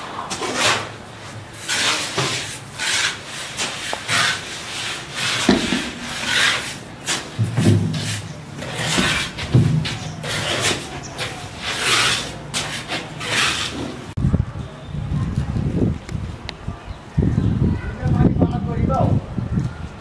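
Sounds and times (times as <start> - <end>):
trowel scraping wet cement: 0.2 - 14.2.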